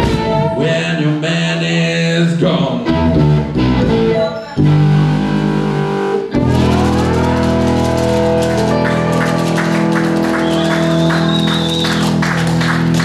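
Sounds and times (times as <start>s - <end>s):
live blues band: 0.0s - 0.8s, 2.8s - 13.0s
guitar note sliding up: 4.0s - 11.2s
light percussion beat: 6.5s - 13.0s.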